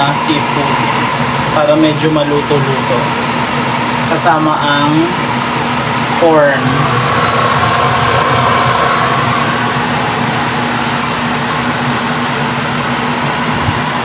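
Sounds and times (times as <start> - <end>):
electric fan motor whirring: 5.6 - 12.1.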